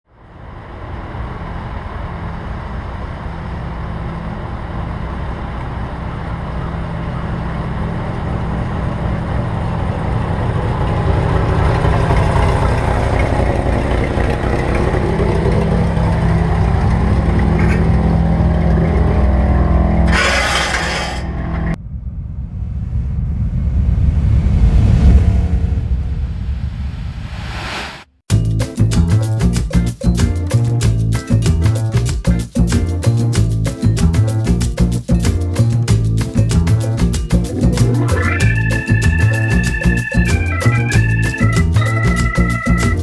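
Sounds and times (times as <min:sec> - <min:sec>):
car engine running: 0:00.6 - 0:21.8.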